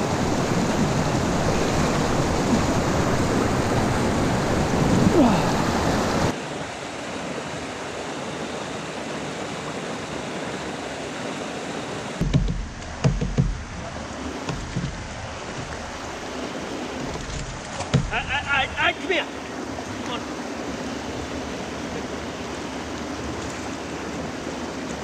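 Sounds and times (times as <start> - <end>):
water rushing over rocks: 0.0 - 25.0
low thumps and knocks: 12.2 - 16.3, 17.0 - 18.3.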